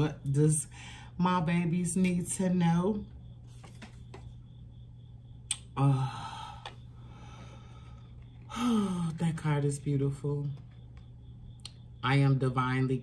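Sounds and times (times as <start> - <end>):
woman speaking: 0.0 - 3.1, 8.5 - 10.7, 12.0 - 13.0
low room hum: 0.0 - 13.0.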